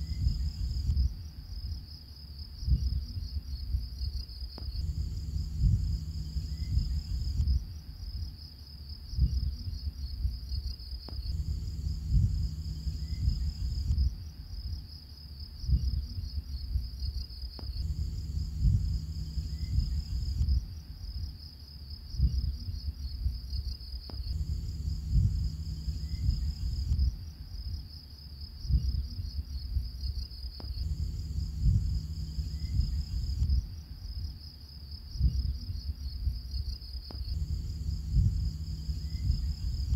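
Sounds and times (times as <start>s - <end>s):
low rumble: 0.0s - 1.7s, 4.6s - 7.9s, 11.1s - 14.4s, 17.6s - 20.9s, 24.1s - 27.4s, 30.6s - 34.2s, 37.1s - 39.9s
crickets chirping: 0.0s - 39.9s.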